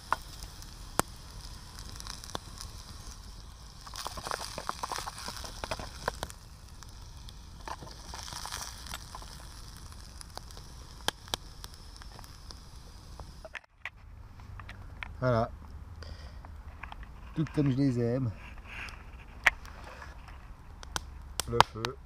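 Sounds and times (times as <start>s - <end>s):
potatoes sizzling in a pot: 0.0s - 13.6s
campfire crackling and popping: 0.0s - 22.0s.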